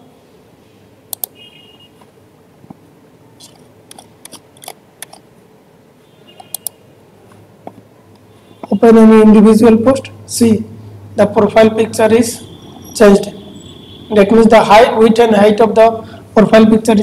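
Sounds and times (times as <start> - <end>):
faint computer mouse clicks: 1.1 - 1.4, 6.4 - 6.8.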